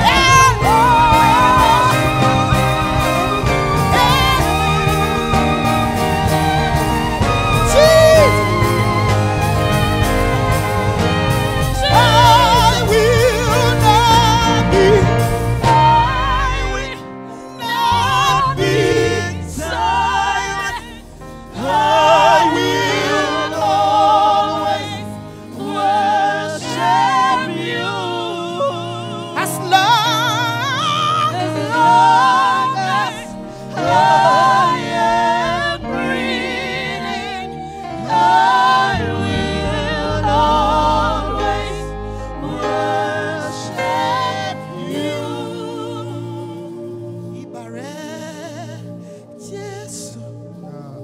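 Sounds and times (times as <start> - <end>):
woman singing with vibrato: 0.0 - 5.0
backing singers: 0.0 - 50.7
instrumental accompaniment with bass: 0.0 - 51.0.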